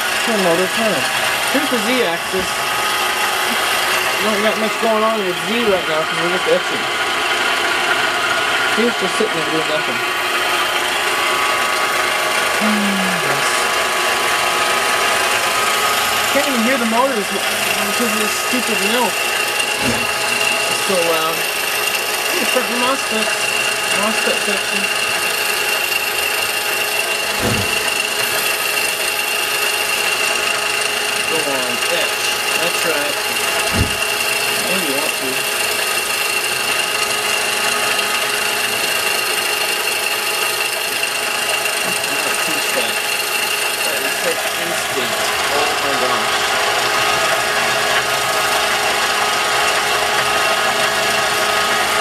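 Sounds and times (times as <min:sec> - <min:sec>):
milling spindle high whine: 0:00.0 - 0:52.0
low thud: 0:27.3 - 0:27.9, 0:33.7 - 0:34.1.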